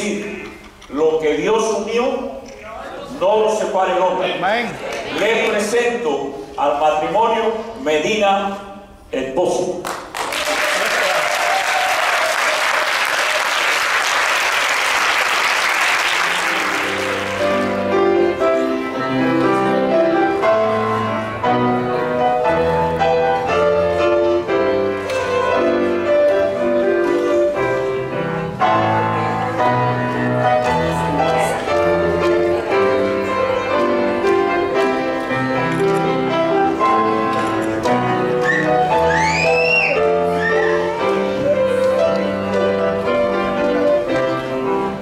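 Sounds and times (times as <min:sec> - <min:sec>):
people applauding: 0:09.8 - 0:17.8
piano music: 0:12.4 - 0:45.0.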